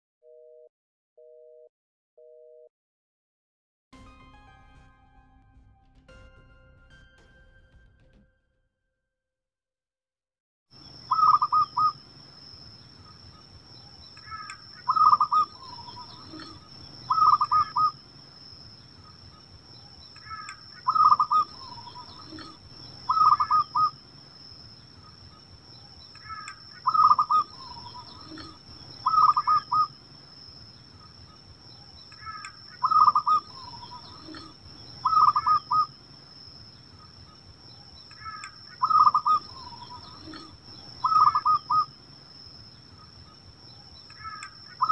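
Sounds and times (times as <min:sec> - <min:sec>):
dove cooing: 0:11.1 - 0:12.0, 0:14.2 - 0:18.0, 0:20.2 - 0:24.0, 0:26.2 - 0:29.9, 0:32.2 - 0:35.9, 0:38.2 - 0:41.9.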